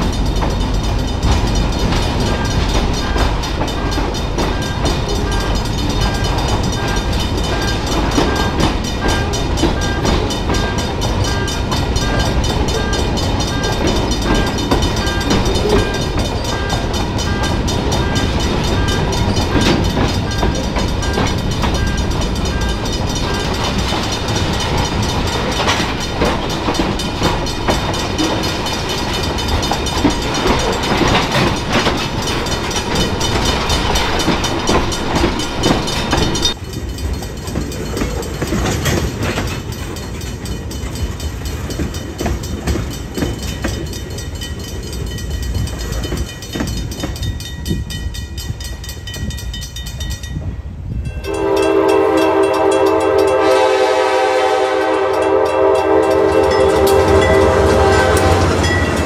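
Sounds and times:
crossing warning bell dinging: 0.0s - 59.0s
train wheels rumbling on rail: 0.0s - 59.0s
wheels clicking over rail joints: 0.0s - 59.0s.

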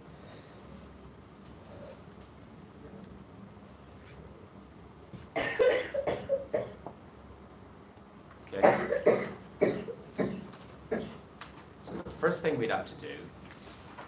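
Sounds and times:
person coughing: 5.4s - 6.8s, 8.6s - 11.2s.

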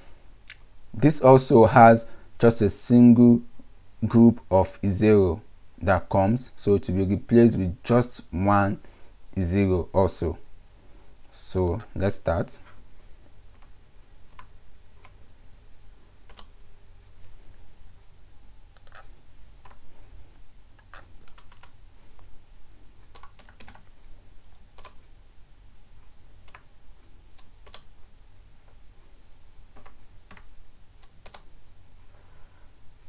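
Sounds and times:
computer keyboard typing: 16.2s - 16.6s, 18.7s - 19.8s, 20.8s - 21.8s, 23.0s - 24.0s, 24.7s - 25.0s, 26.4s - 26.7s, 27.3s - 27.9s, 29.7s - 31.5s.

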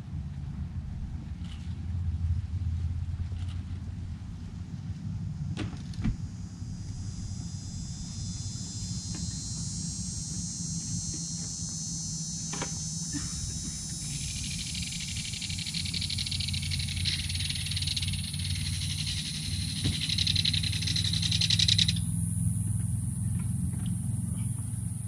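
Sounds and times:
steady low hum: 0.0s - 25.0s
insects buzzing: 3.3s - 25.0s.

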